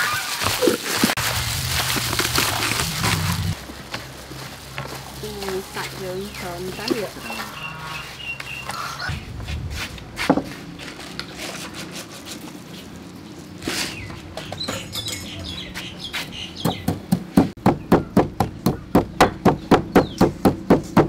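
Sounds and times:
pestle pounding in stone mortar: 16.6s - 21.0s.

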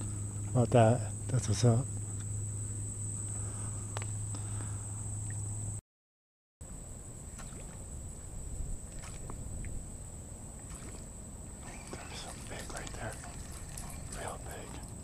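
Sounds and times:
steady high whine: 0.0s - 5.8s, 6.6s - 15.0s
water dripping and lapping: 7.3s - 7.9s, 8.8s - 9.8s, 10.5s - 15.0s.

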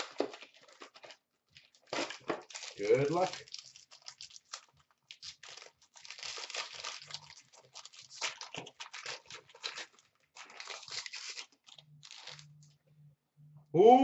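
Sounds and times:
wrapper tearing and crinkling: 0.0s - 12.7s.

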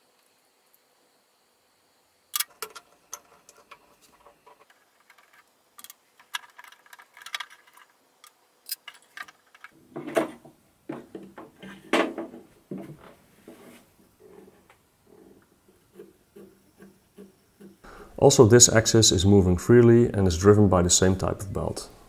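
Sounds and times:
metal parts clicking and clinking: 2.4s - 9.8s.

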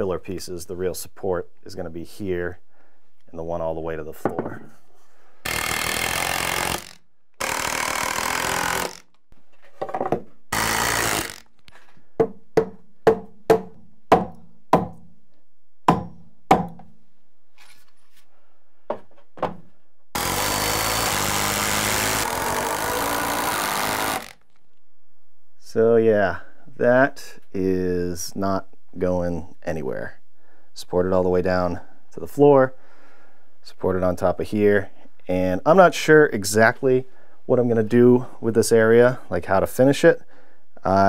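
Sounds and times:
drill driving screws into wood: 5.4s - 9.2s, 10.5s - 11.6s, 20.1s - 24.4s
sharp knocks on wood: 15.9s - 16.9s.

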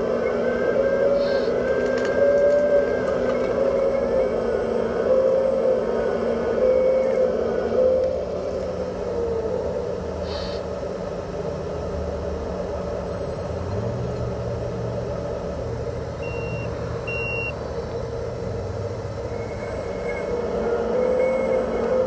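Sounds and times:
short electronic beeps: 13.0s - 13.8s, 16.2s - 17.6s.

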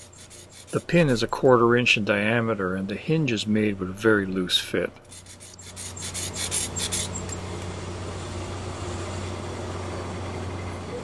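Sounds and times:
low background hum: 0.0s - 11.0s
metal scraping on metal hinge: 5.1s - 7.4s.

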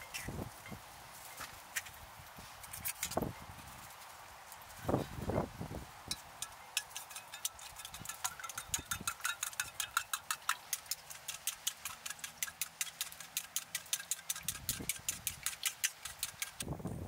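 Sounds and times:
utensil clicking against metal cup: 6.1s - 16.6s.

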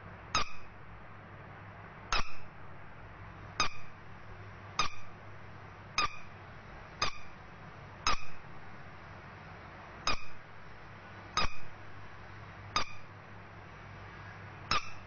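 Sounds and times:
rubber duck toy squeaking: 0.4s - 0.7s, 2.1s - 2.4s, 3.6s - 3.9s, 4.8s - 5.1s, 6.0s - 6.3s, 7.0s - 7.4s, 8.1s - 8.4s, 10.1s - 10.4s, 11.4s - 11.7s, 12.8s - 13.1s, 14.7s - 15.0s.

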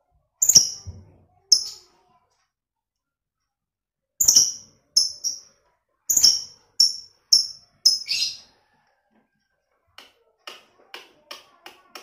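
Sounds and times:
lovebird chirping: 0.4s - 0.9s, 1.5s - 1.8s, 4.2s - 5.5s, 6.1s - 8.5s.

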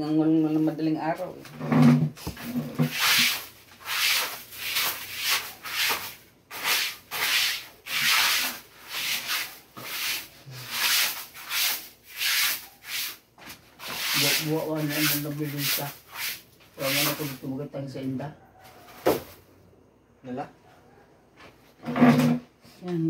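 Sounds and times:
brushing strokes swishing: 2.4s - 13.2s, 13.8s - 17.5s.

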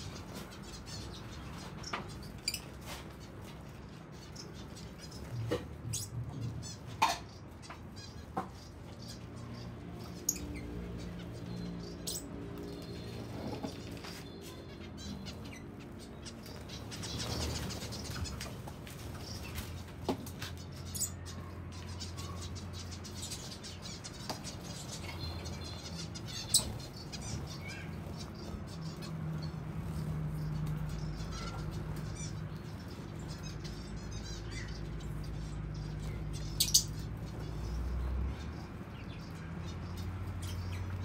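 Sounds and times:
finch calls: 0.0s - 41.0s.

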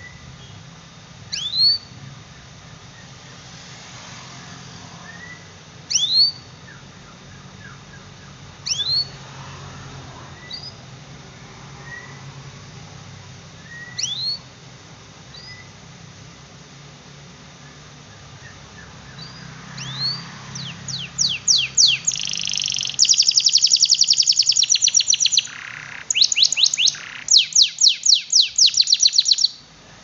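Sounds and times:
canary rising calls: 18.3s - 29.6s
soft short bird chirps: 18.4s - 29.6s.

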